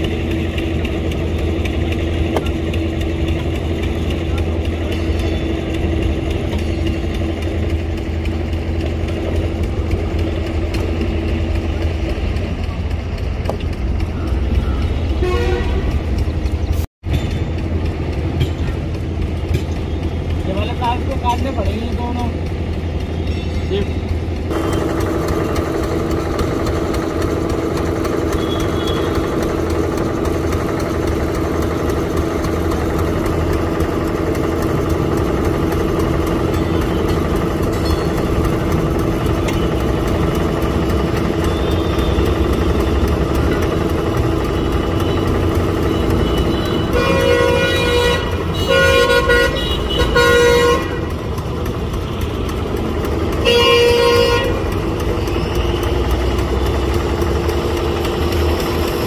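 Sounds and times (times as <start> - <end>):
vehicle engine running: 0.0 - 59.0
car horn blasts: 15.2 - 16.1, 45.8 - 51.2, 53.4 - 54.7.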